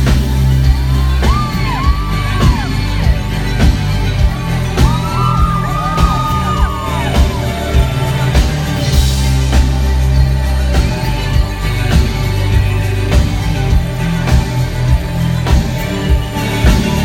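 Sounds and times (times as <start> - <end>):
live rock band playing: 0.0 - 17.0
audience whooping: 0.9 - 3.1, 4.4 - 8.9.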